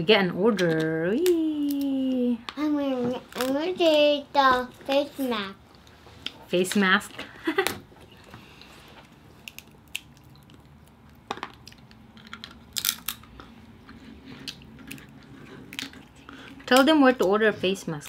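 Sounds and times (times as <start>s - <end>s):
wet chewing: 8.6s - 16.7s
crab shell cracking: 9.4s - 13.4s.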